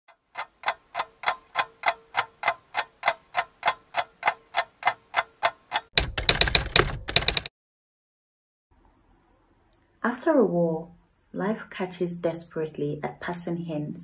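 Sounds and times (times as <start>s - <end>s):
steady mechanical ticking: 0.1s - 7.5s
rapid clatter of clicks: 5.7s - 7.5s.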